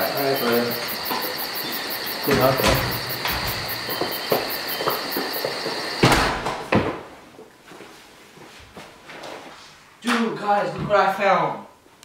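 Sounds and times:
indistinct voices: 0.0 - 5.1
insects chirring: 0.0 - 6.4
door shutting with a knock: 2.2 - 4.6, 6.0 - 7.0.

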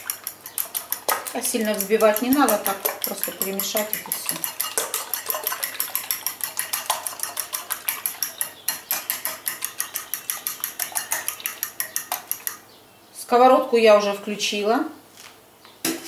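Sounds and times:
fork whisking eggs in bowl: 0.0 - 12.6.

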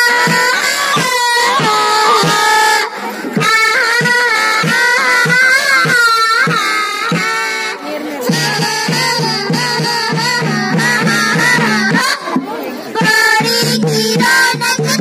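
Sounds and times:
steady drum beat: 0.0 - 15.0
person singing folk song: 7.9 - 15.0.

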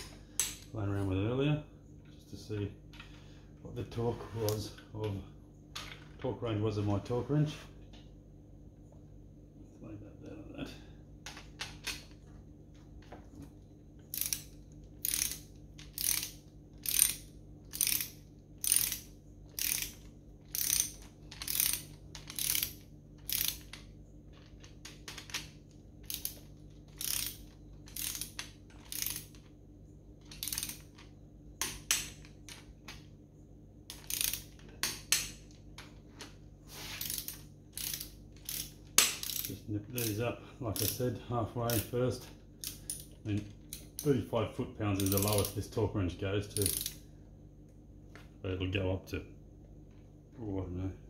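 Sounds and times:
ratchet wrench clicking: 14.1 - 23.8, 24.4 - 29.5, 30.2 - 32.6, 33.9 - 35.4, 36.9 - 40.2, 40.8 - 41.0, 42.6 - 44.1, 45.0 - 45.6, 46.5 - 47.0.

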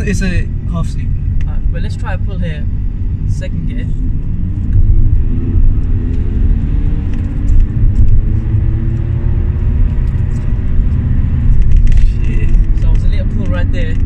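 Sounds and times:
diesel engine accelerating hard: 0.0 - 14.0.

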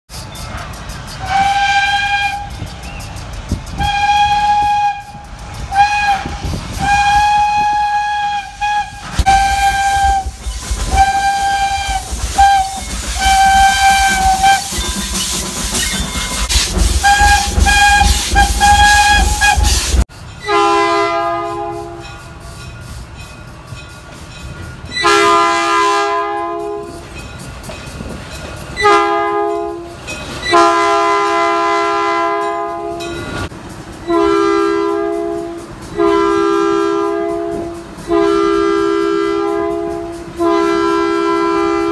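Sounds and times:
steam hiss: 0.1 - 20.5, 21.5 - 41.9
locomotive engine rumble: 0.1 - 41.9
deep chord train horn: 1.2 - 2.6, 3.8 - 14.7, 20.4 - 22.2, 25.0 - 27.0, 28.8 - 33.1, 34.1 - 41.9
steam whistle blasts: 1.2 - 2.9, 3.7 - 22.2, 24.9 - 27.0, 28.8 - 33.1, 34.1 - 41.9.

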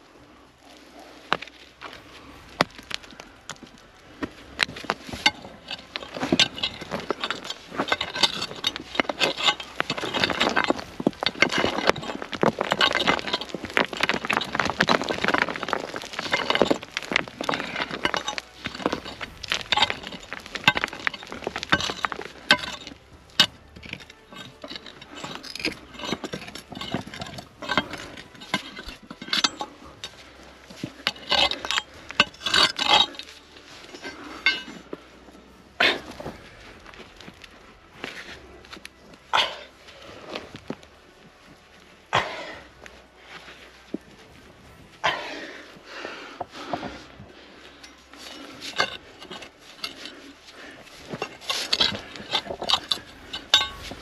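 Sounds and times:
pick digging into stony soil: 0.7 - 35.1, 35.7 - 40.9, 45.0 - 54.0
stones clinking: 0.7 - 54.0.

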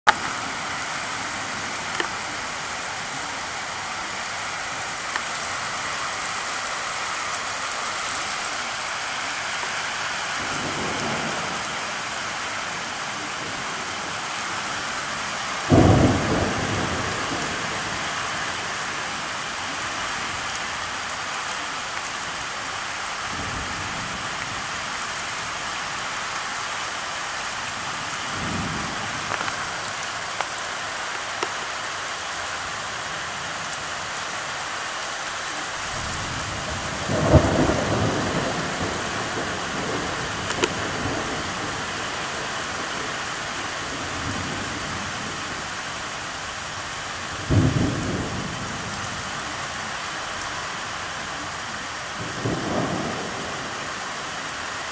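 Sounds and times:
heavy rain on street: 0.1 - 54.9
thunder clap and rumbles: 15.6 - 18.0.

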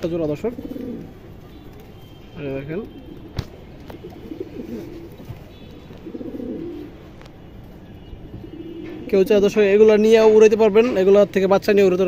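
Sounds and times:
pigeons cooing: 0.0 - 1.8, 2.8 - 7.0, 8.1 - 9.6.

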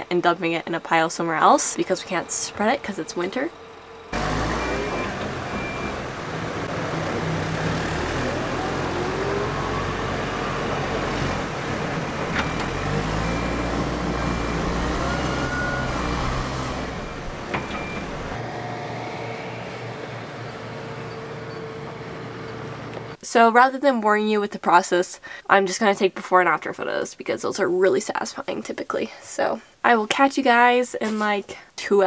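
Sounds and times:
diesel engine revving: 1.2 - 23.2
reversing alarm beeping: 1.4 - 22.9.

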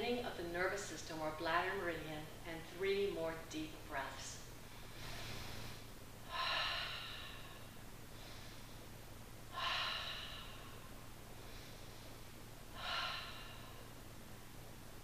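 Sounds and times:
woman breathing deeply: 4.6 - 14.6.

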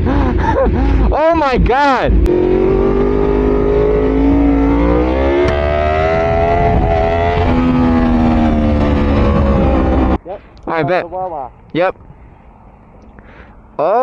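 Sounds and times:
motorcycle engine accelerating: 0.0 - 10.2
wind rushing over microphone: 2.0 - 10.3.

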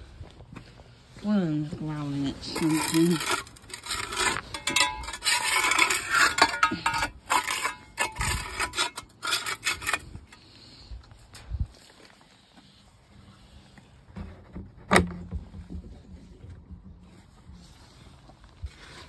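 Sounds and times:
shovel scraping concrete floor: 2.4 - 10.6, 17.6 - 19.0.

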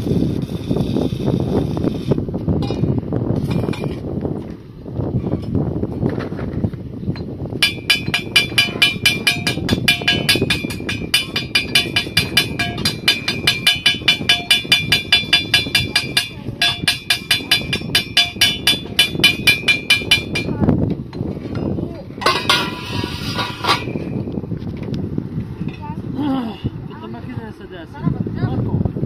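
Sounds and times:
rapid ringing tapping: 7.6 - 24.2.

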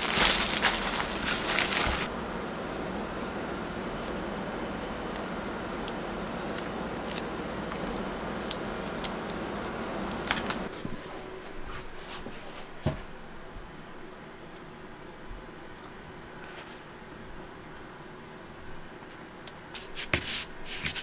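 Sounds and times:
paper backing crinkling: 0.0 - 2.1, 6.4 - 10.7.

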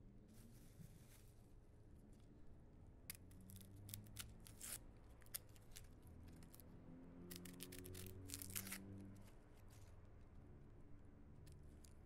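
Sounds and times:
faint room hum: 0.0 - 12.0
onion skin crackling and rustling: 7.3 - 8.8.

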